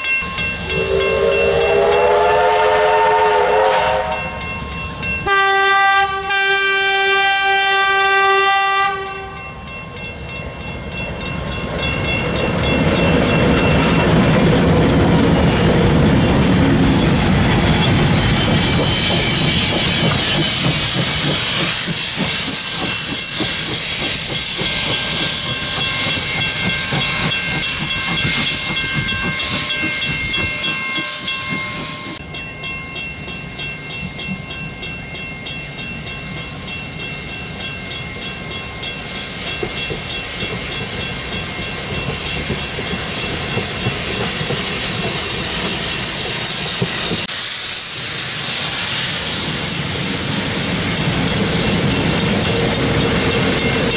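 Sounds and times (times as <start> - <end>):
steam hissing: 16.2 - 32.2, 36.2 - 53.9.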